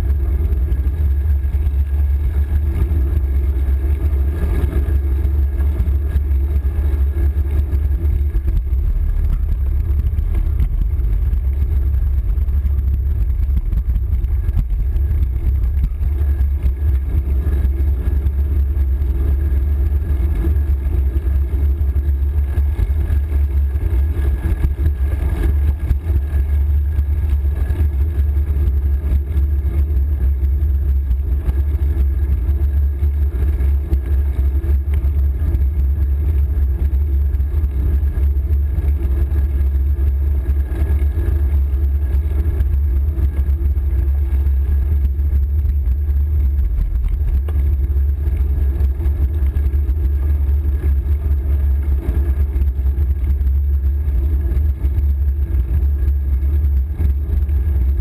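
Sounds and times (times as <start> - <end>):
bicycle tyre and road noise: 0.0 - 58.0
wind buffeting microphone: 6.0 - 20.9.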